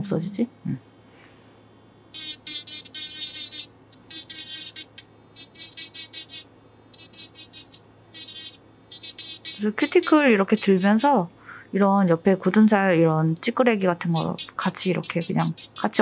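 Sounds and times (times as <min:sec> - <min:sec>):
electric nail drill buzzing: 0:02.1 - 0:11.3, 0:14.0 - 0:16.0.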